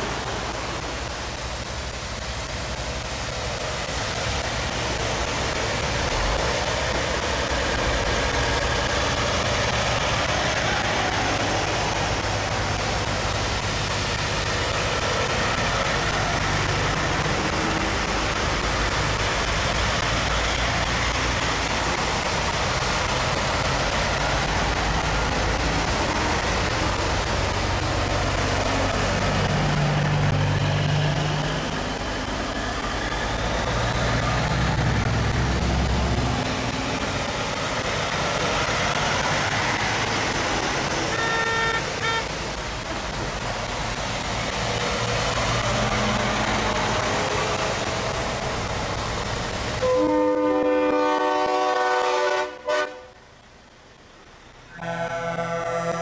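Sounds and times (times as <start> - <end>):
diesel truck engines: 0.0 - 56.0
tyres hissing on wet road: 0.0 - 56.0
truck horn toot: 41.1 - 42.3, 49.8 - 53.1, 54.7 - 56.0.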